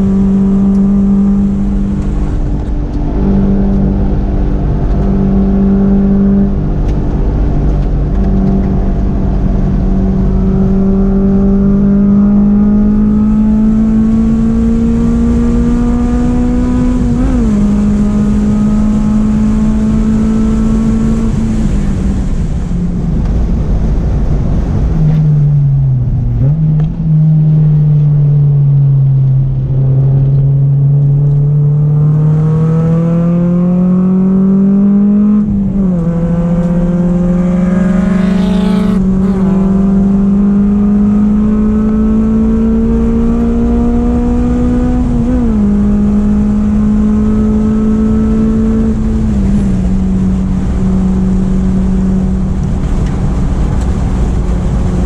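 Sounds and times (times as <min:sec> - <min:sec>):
car engine from inside cabin: 0:00.0 - 0:55.0.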